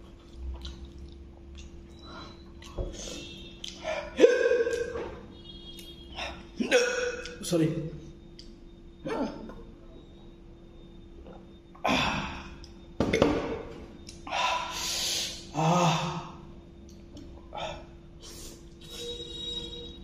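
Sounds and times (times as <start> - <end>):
man breathing hard: 14.3 - 16.3.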